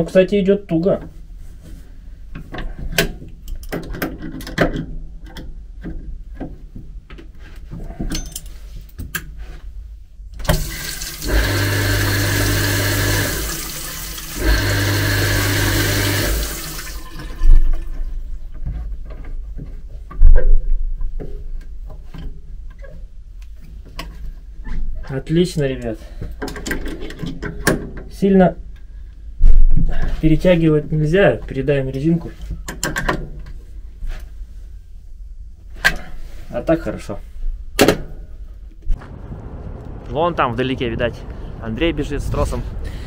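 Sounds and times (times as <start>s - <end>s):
toilet flushing: 10.5s - 18.0s.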